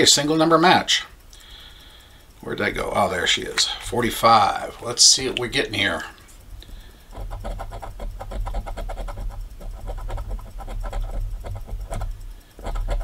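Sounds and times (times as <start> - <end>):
coin scraping scratch card: 7.1 - 13.0.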